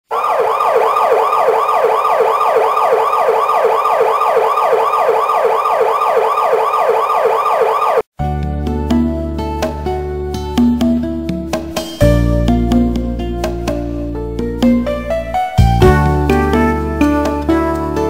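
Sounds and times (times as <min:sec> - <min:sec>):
siren yelp: 0:00.1 - 0:08.1.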